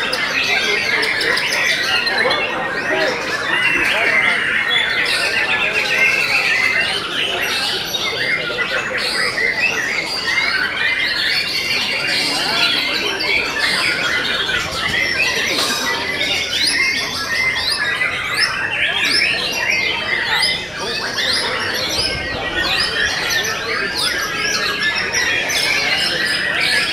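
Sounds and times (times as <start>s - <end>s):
birds singing chorus: 0.0s - 26.9s.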